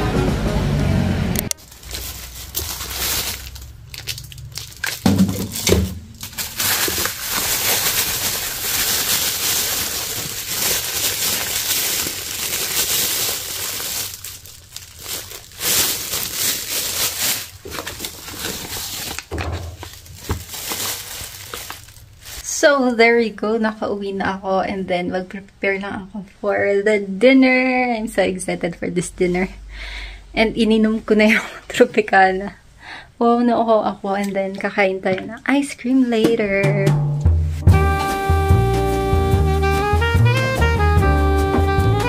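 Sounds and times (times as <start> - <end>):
plastic bags crinkling: 1.5 - 22.6.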